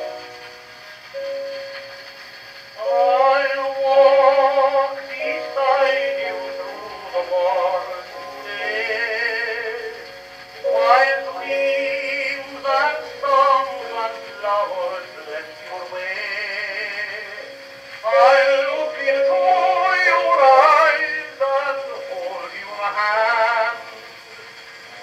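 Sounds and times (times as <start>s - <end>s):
man singing on gramophone record: 2.8s - 25.0s.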